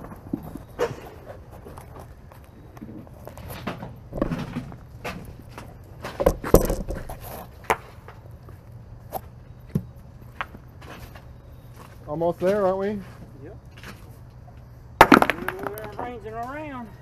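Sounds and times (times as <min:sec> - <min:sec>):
rocks knocking and clattering: 0:03.3 - 0:07.8, 0:15.0 - 0:16.1.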